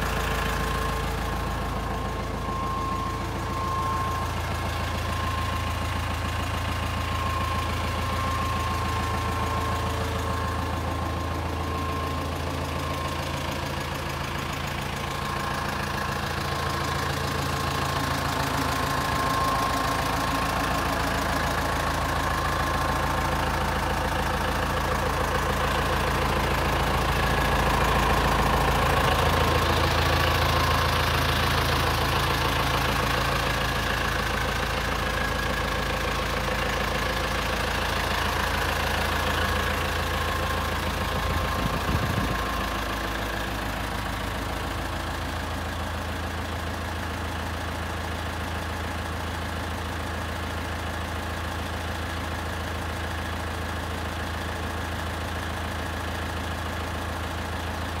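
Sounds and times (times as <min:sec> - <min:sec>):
tractor diesel engine idling: 0:00.0 - 0:58.0.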